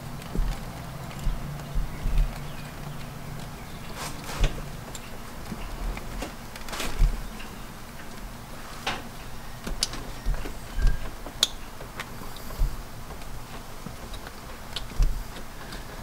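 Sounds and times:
dull low knocks: 0:00.0 - 0:03.4, 0:12.5 - 0:12.9.

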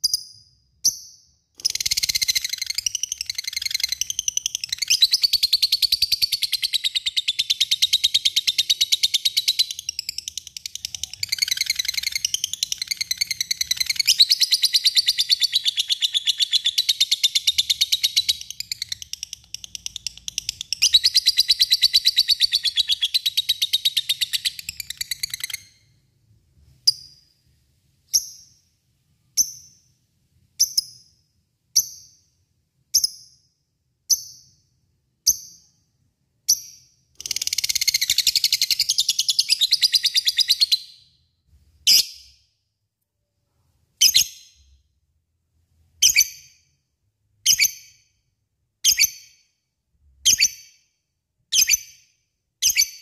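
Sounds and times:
lovebird chattering chirps: 0:00.0 - 0:25.8.

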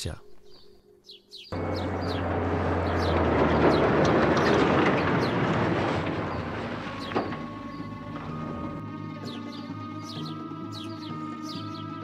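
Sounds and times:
truck engine: 0:01.5 - 0:12.0.

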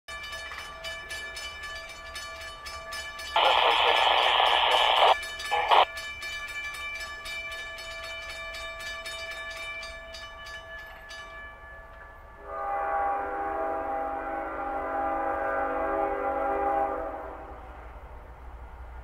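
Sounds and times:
crossing bell ringing: 0:00.1 - 0:12.6
locomotive air horn blasts: 0:12.4 - 0:17.6.

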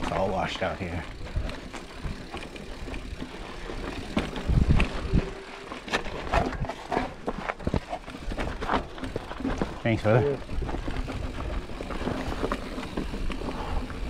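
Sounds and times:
bike rattling clicks and knocks: 0:00.0 - 0:14.0
wind rumble on microphone: 0:04.4 - 0:05.4.

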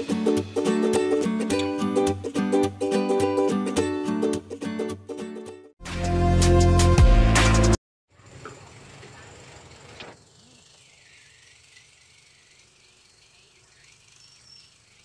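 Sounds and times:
light hiss: 0:08.1 - 0:15.0.

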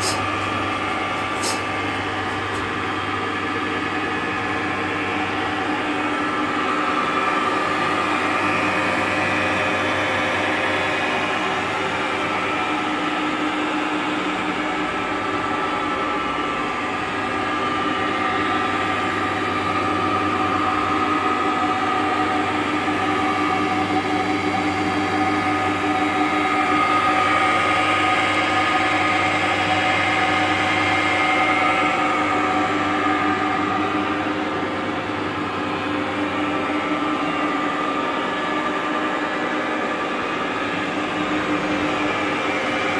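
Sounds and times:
machine whine: 0:00.0 - 0:42.9
milling machine motor hum: 0:00.0 - 0:42.9.

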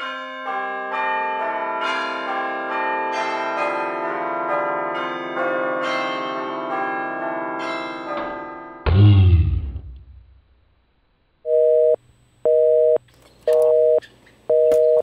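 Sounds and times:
peal of ringing bells: 0:00.0 - 0:08.8.

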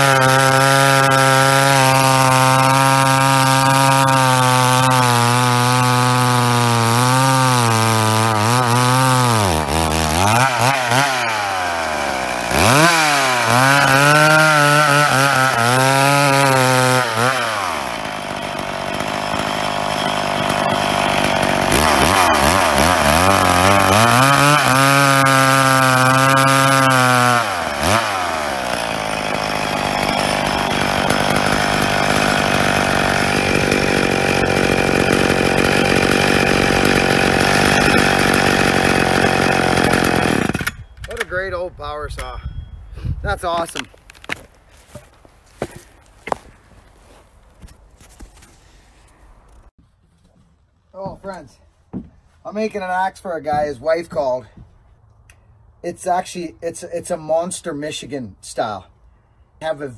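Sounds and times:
chainsaw cutting log: 0:00.0 - 0:41.5, 0:43.3 - 0:49.7.

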